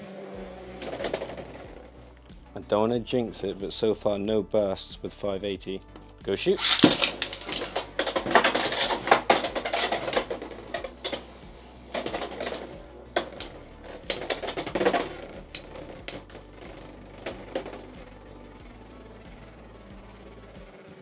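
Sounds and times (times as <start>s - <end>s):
spinning tops colliding: 6.5s - 20.9s.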